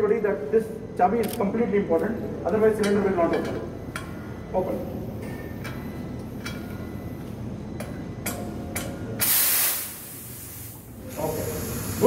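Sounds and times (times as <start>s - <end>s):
gas cylinder valve hissing: 9.2s - 12.0s.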